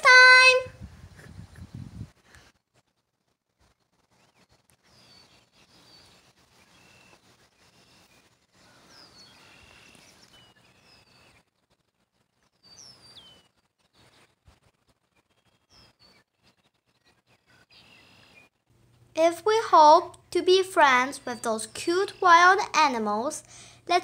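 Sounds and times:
soft steady hiss: 0:00.0 - 0:24.0
songbird chirps and whistles: 0:04.1 - 0:11.4, 0:12.5 - 0:14.4.

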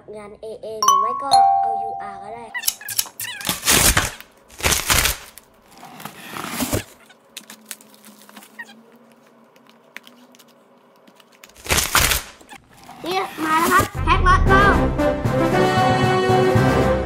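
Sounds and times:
plastic shrink wrap crinkling: 0:03.4 - 0:12.9.

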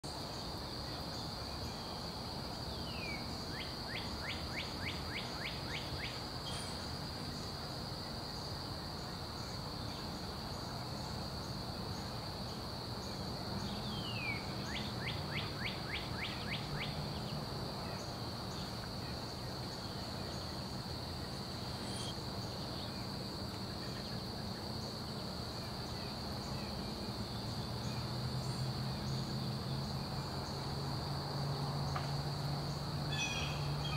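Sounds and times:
bird calling: 0:21.5 - 0:22.2
high-pitched insect drone: 0:21.5 - 0:22.2.

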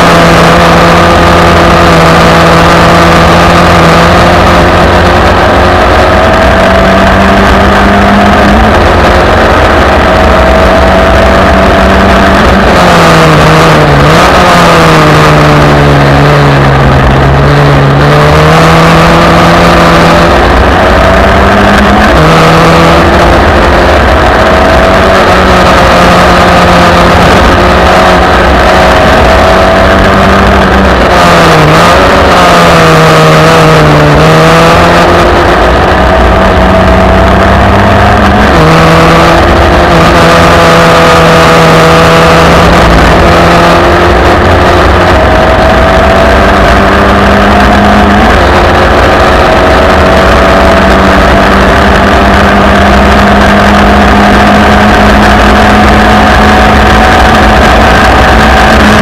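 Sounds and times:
race car engine revving: 0:00.0 - 0:59.0.

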